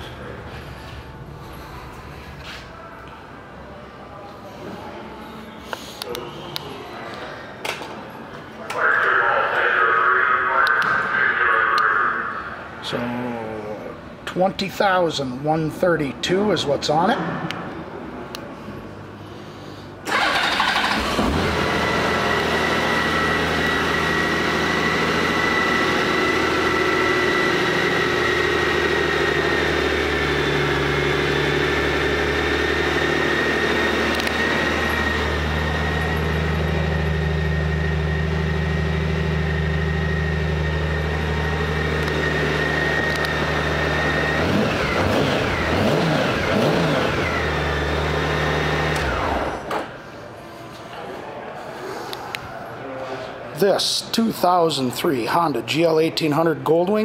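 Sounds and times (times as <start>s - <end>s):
motorcycle engine idling and revving: 20.1s - 49.9s.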